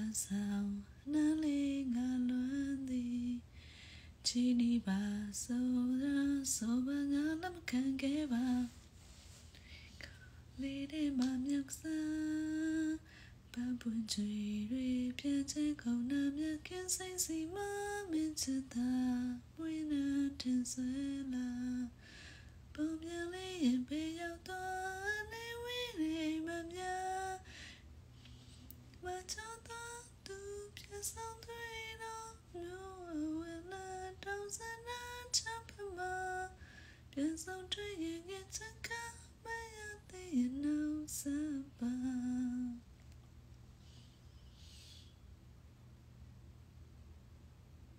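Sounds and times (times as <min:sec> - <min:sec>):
woman singing softly: 0:00.0 - 0:08.9, 0:09.5 - 0:27.6, 0:28.2 - 0:43.0.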